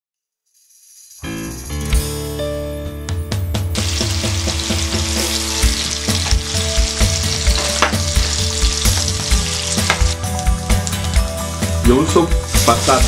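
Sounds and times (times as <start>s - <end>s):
pork sizzling in a frying pan: 3.8s - 13.0s.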